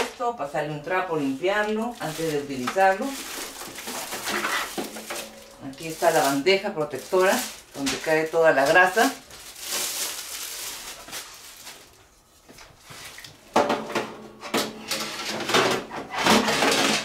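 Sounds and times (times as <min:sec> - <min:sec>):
packaging rustling: 0:01.3 - 0:13.4
trays clattering: 0:02.2 - 0:06.4.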